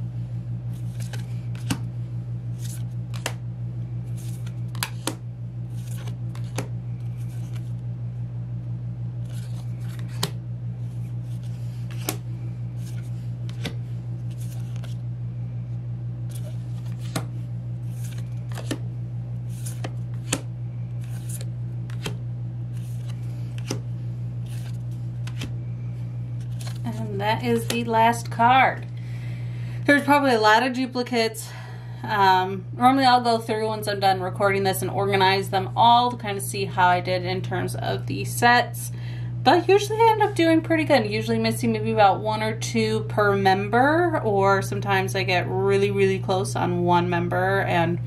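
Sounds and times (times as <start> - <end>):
steady low hum: 0.0 - 48.0
cards clicking and swishing: 0.7 - 1.9, 2.5 - 3.4, 4.1 - 7.8, 9.2 - 15.0, 16.3 - 18.9, 19.5 - 25.6, 26.4 - 27.8.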